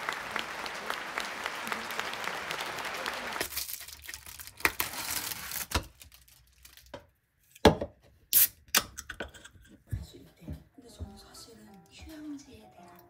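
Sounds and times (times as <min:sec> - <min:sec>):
food packaging rustling: 0:03.4 - 0:07.1.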